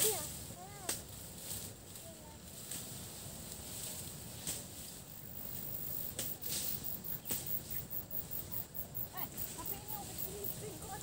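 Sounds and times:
low rumble of wind: 0.0 - 11.0
insect buzz: 3.8 - 11.0.

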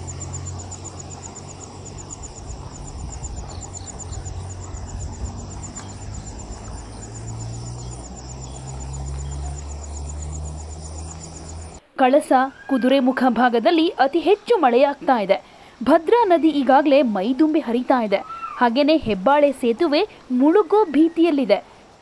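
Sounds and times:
insect trilling: 0.0 - 11.8.

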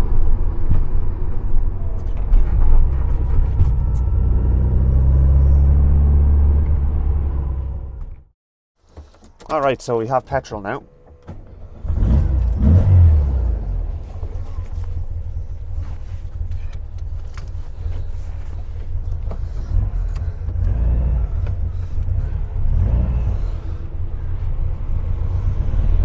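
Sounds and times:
car engine idling unevenly: 13.7 - 25.2.

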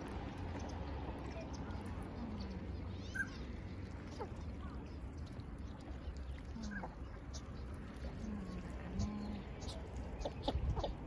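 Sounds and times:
steady low rumble: 0.0 - 11.0
ducks calling: 3.0 - 11.0.

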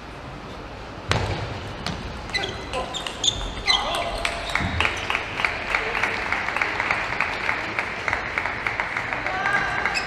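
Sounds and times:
arena crowd noise: 3.7 - 10.0
rhythmic clapping: 4.2 - 10.0.

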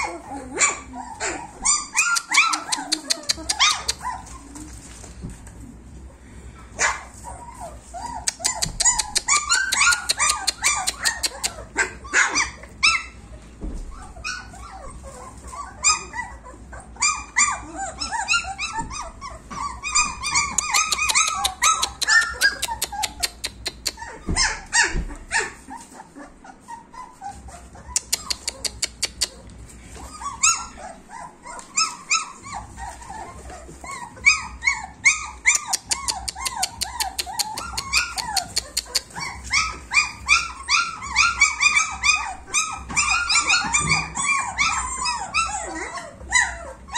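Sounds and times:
puppies whining and yelping: 0.0 - 46.9.

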